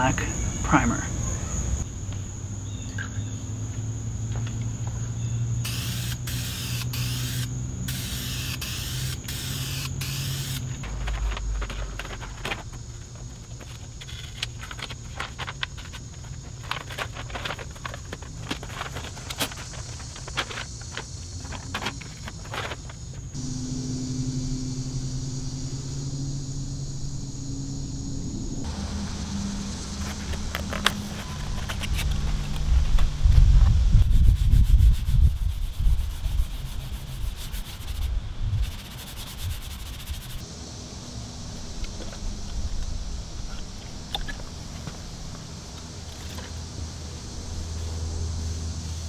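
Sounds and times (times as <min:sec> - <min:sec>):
steady low hum: 0:00.0 - 0:15.2, 0:23.0 - 0:49.0
crickets trilling: 0:00.0 - 0:49.0
spray can spraying: 0:05.7 - 0:11.2.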